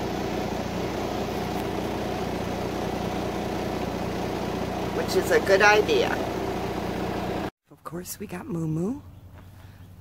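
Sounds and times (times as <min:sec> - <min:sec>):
bus engine idling: 0:00.0 - 0:07.5.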